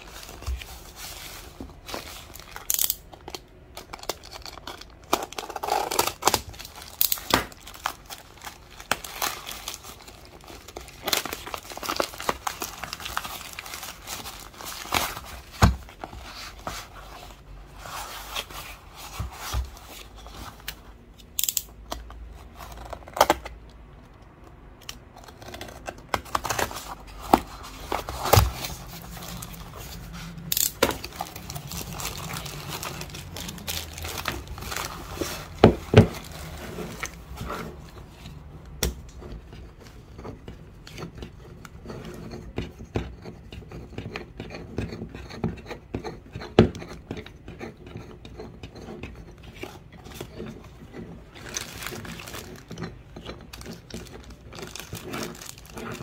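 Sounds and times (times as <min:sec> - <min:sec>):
plastic bag crinkling: 0:03.8 - 0:15.6, 0:26.3 - 0:37.4, 0:51.3 - 0:52.9, 0:53.5 - 0:56.0
cardboard box being opened: 0:25.2 - 0:30.2.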